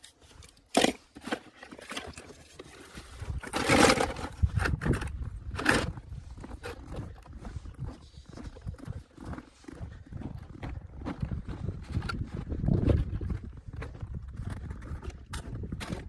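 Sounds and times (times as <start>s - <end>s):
toy cars in plastic tub: 0.6s - 5.0s.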